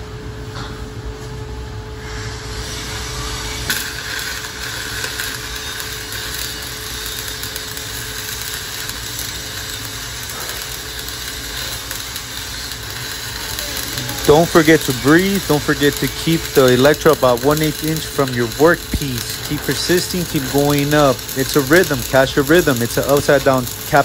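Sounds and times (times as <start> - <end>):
welding arc crackling and hissing: 2.0 - 24.0
sharp crack: 3.7 - 24.0.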